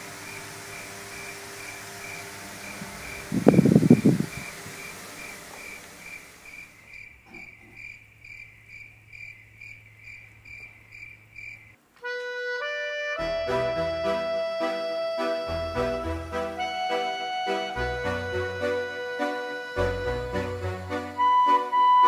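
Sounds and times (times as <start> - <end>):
low steady hum: 0.0 - 12.0, 13.2 - 22.0
crickets chirping: 0.2 - 11.8
higher chirping: 0.2 - 11.8
music: 12.0 - 22.0.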